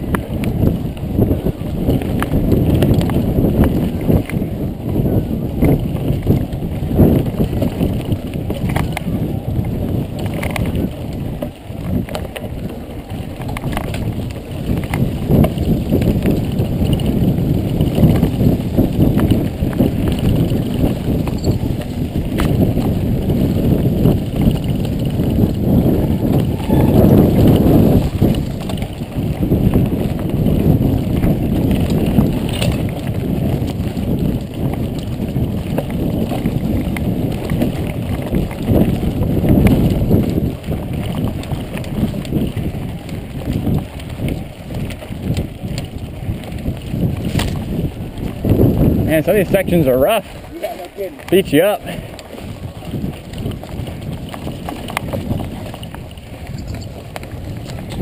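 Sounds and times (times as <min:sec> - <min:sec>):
bike rattling over bumps: 0:00.0 - 0:58.0
wind and tyres rumbling: 0:00.0 - 0:58.0.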